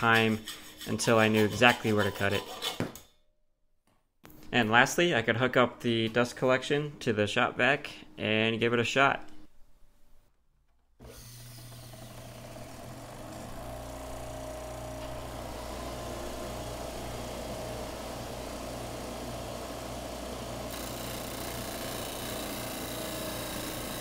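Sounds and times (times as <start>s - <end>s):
disc sander motor humming: 11.0s - 24.0s.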